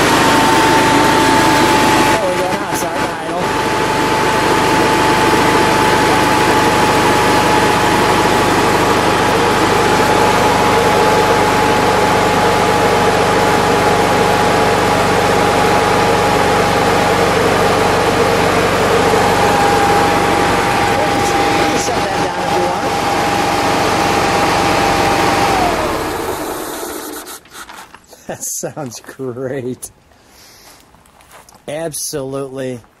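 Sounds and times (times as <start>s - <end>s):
car engine idling: 0.0s - 27.4s
cooling fan whine: 0.0s - 28.9s.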